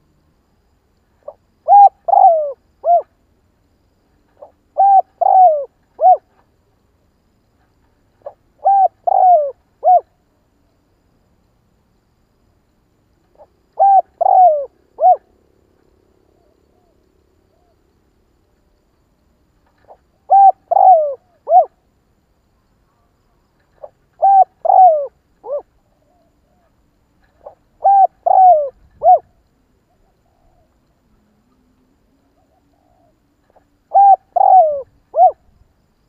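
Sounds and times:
dove cooing: 1.2 - 3.1, 4.4 - 6.4, 8.2 - 10.2, 13.3 - 15.3, 19.8 - 21.8, 23.7 - 30.7, 32.2 - 35.5.

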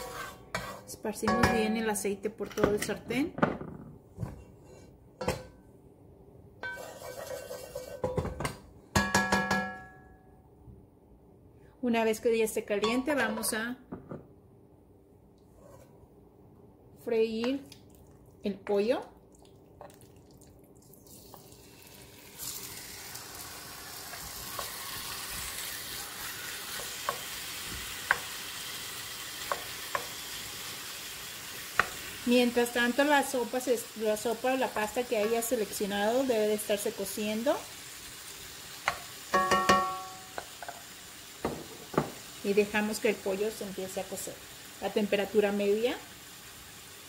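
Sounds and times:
wooden spatula scraping skillet: 0.0 - 1.0, 6.6 - 8.2, 15.5 - 16.0
chicken sizzling in skillet: 21.1 - 47.0.

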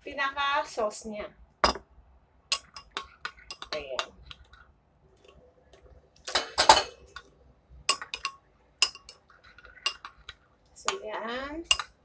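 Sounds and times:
teaspoon clinking in ceramic bowl: 2.5 - 4.2, 7.9 - 11.0, 11.6 - 12.0.

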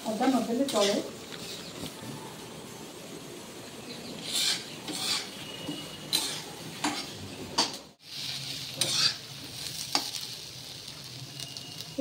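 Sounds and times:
onions sizzling in oil: 0.0 - 2.0, 4.2 - 12.0
spatula scraping a pan: 4.2 - 7.2, 8.7 - 9.3.

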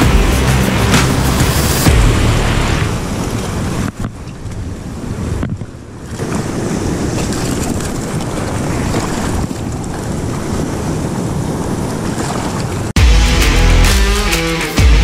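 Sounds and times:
surf churning over rocks: 0.0 - 12.9
wind buffeting microphone: 3.0 - 12.9.

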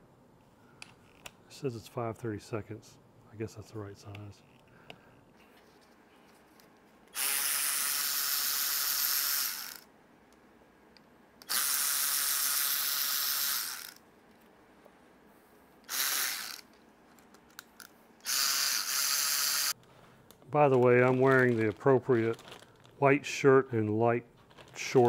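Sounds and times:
electric ratchet whirring: 7.1 - 9.8, 11.4 - 14.0, 15.9 - 16.7, 18.2 - 19.8.

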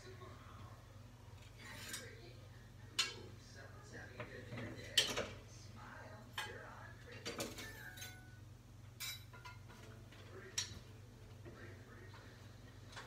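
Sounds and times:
kitchenware clinking: 1.6 - 2.2, 2.9 - 3.3, 4.2 - 5.4, 6.3 - 11.0.

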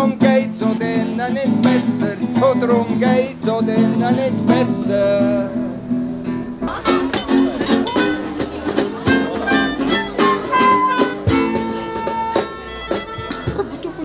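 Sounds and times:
acoustic guitars strumming: 0.0 - 14.0
melodica playing held notes: 9.1 - 13.7.

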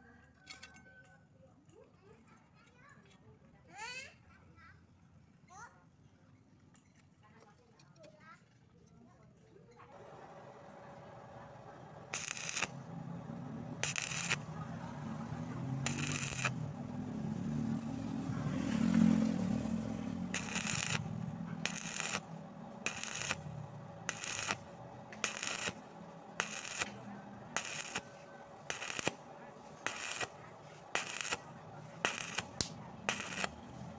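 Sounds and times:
welding arc crackling: 12.0 - 33.9.

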